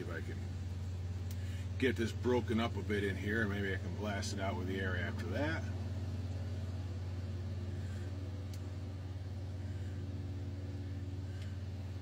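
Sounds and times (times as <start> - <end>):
low engine drone: 0.0 - 12.0
faint small clicks: 1.2 - 1.5, 8.5 - 8.7.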